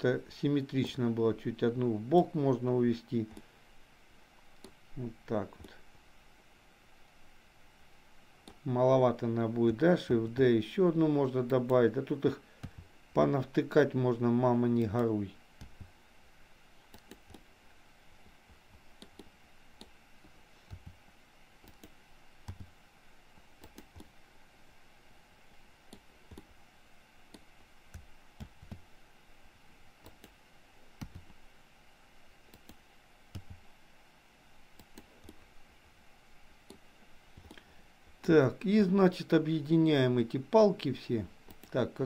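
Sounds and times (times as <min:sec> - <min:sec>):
faint background hiss: 0:00.0 - 0:42.0
mouse and keyboard clicks: 0:16.9 - 0:17.5, 0:19.0 - 0:20.0, 0:21.6 - 0:22.7, 0:23.6 - 0:24.1.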